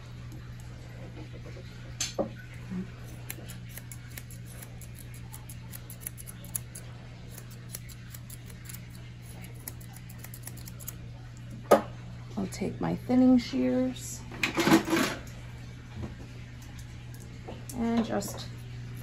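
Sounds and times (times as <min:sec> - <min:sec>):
grooming shears snipping: 0:03.0 - 0:11.0.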